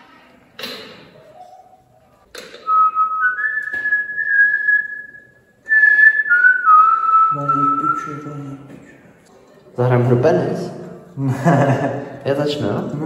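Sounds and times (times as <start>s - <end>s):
person whistling a tune: 2.6s - 8.2s.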